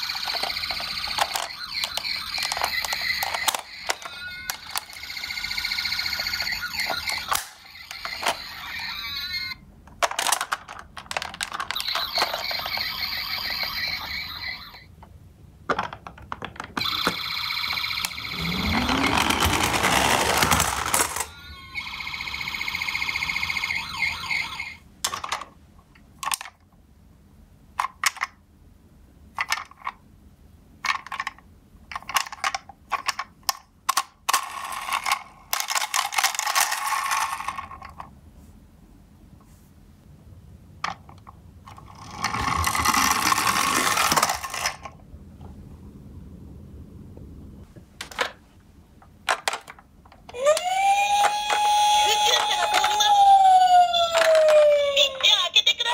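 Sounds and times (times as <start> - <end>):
toy electronic sirens: 0.0 - 9.6, 11.7 - 14.9, 16.8 - 24.8, 50.3 - 55.4
plastic toys clicking: 0.3 - 5.0, 9.9 - 12.4, 30.8 - 38.1, 49.2 - 53.2.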